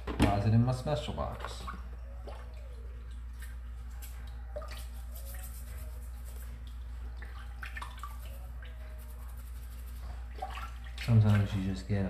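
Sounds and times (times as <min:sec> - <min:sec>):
water splashing and dripping: 0:01.2 - 0:11.8
toothbrush scrubbing: 0:04.0 - 0:06.6, 0:07.8 - 0:10.6.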